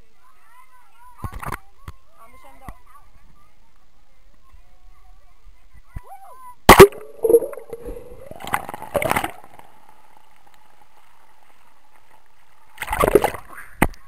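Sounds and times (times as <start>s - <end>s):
faint underwater hum: 6.6s - 13.8s
water splashing and gurgling: 6.7s - 11.4s, 12.0s - 13.6s.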